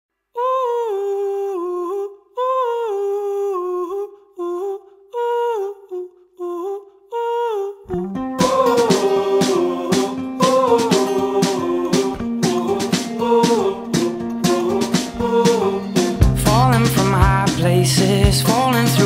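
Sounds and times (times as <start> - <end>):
wordless vocal melody: 0.4 - 19.0
guitar and band accompaniment: 8.1 - 19.0.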